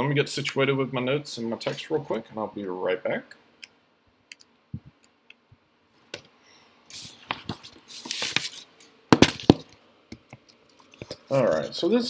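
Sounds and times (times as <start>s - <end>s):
paper rustling: 6.9s - 9.6s.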